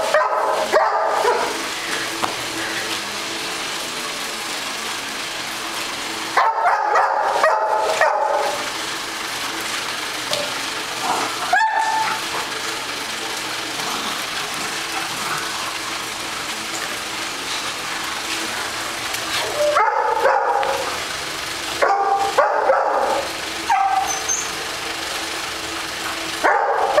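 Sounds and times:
dog barking: 0.0 - 1.6, 6.4 - 8.6, 11.5 - 12.2, 19.5 - 21.0, 21.8 - 24.2, 26.4 - 27.0.

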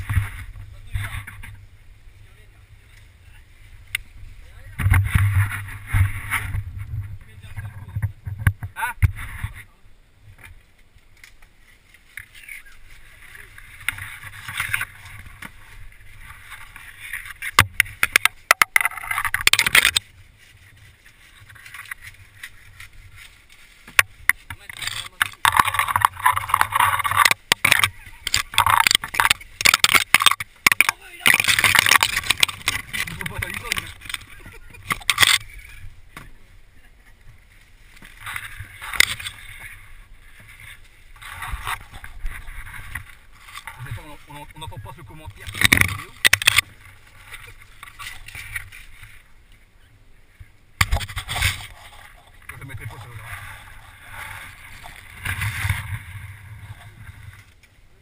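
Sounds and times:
branches scraping against boat: 0.0 - 57.8
branches knocking and snapping: 10.3 - 36.4, 37.2 - 49.1, 50.8 - 57.7.

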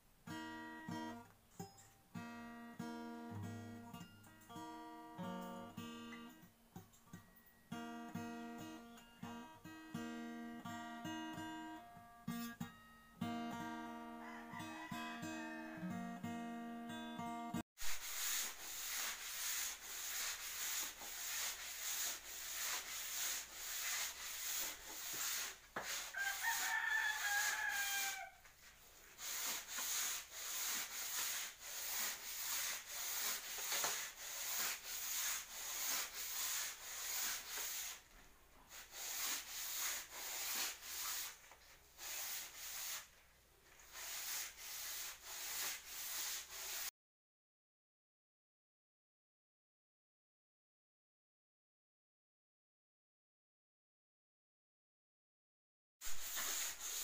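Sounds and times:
rooster crowing: 14.1 - 16.0, 26.1 - 28.5
scratchy rubbing strokes: 17.8 - 38.1, 38.7 - 43.2, 43.8 - 46.9, 56.0 - 57.0.

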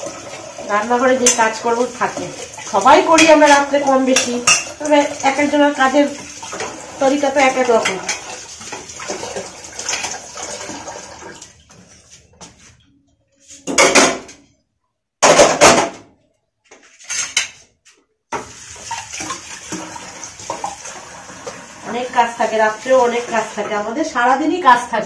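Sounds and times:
pots clattering in a sink: 0.0 - 12.6, 13.5 - 14.6, 15.2 - 16.2, 17.0 - 17.7, 18.3 - 22.4.

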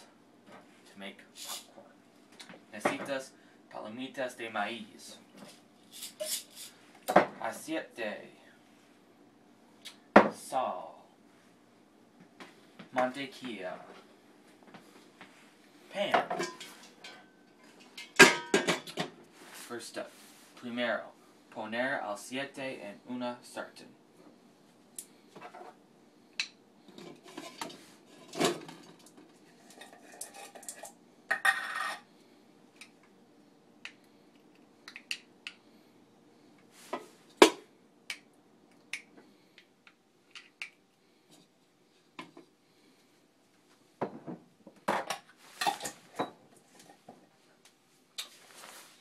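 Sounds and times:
kitchenware clinking: 16.1 - 19.1, 44.9 - 46.4
kitchenware clattering: 16.1 - 19.2, 27.0 - 32.0, 44.9 - 46.9.

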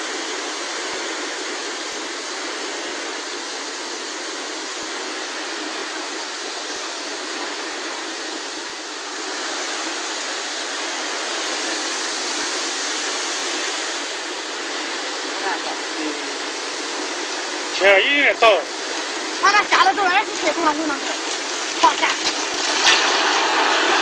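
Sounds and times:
river rushing: 0.0 - 24.0.

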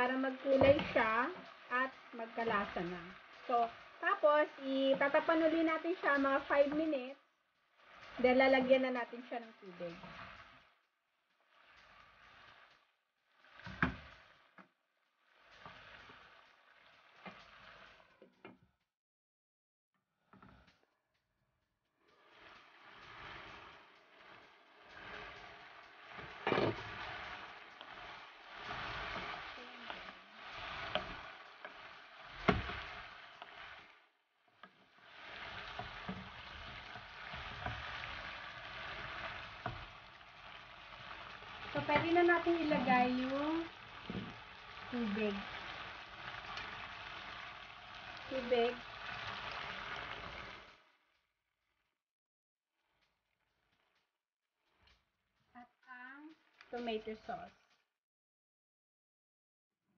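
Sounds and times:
wooden spatula knocking pan: 0.0 - 6.9, 26.1 - 33.8
wooden spatula scraping pan: 0.0 - 10.7, 11.4 - 14.6, 15.2 - 18.2, 22.1 - 50.8
meat frying in a pan: 0.0 - 18.4, 22.0 - 51.2, 52.8 - 57.6.

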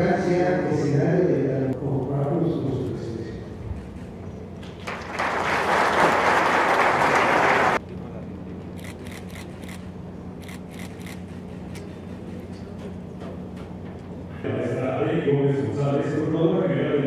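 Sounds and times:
audience applause: 4.6 - 7.8.

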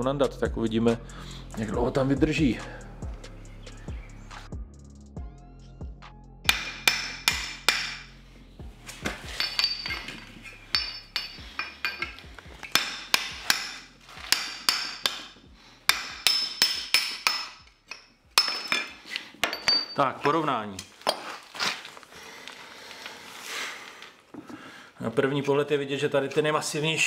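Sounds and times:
hammer striking steel: 6.5 - 8.1, 9.4 - 20.0.

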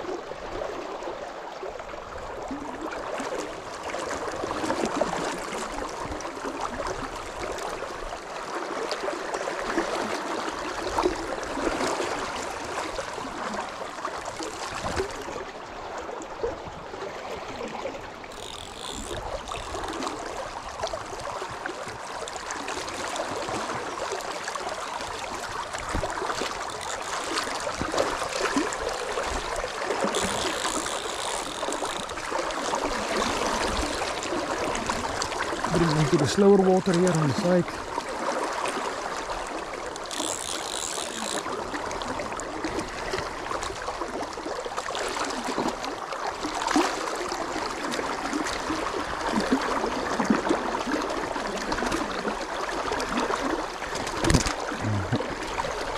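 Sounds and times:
river current rushing: 17.4 - 47.4.

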